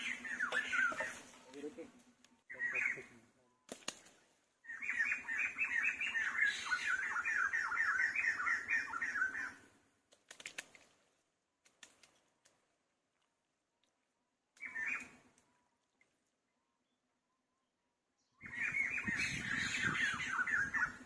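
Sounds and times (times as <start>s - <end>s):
faint clicks: 10.1s - 11.0s, 11.6s - 16.2s.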